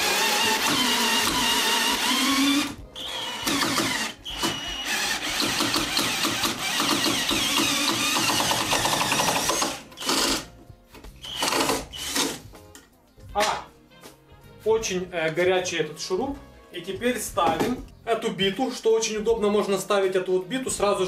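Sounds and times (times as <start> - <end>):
cordless drill motor running: 0.0 - 10.4, 11.3 - 12.4.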